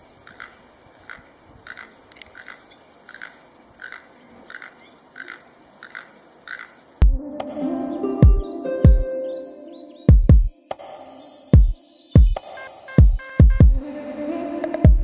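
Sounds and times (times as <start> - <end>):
toucan croaking calls: 0.0 - 7.0.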